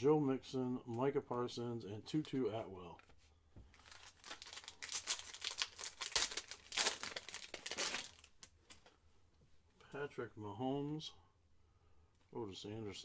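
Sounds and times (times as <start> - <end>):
foil wrapper crinkling: 3.7 - 8.8.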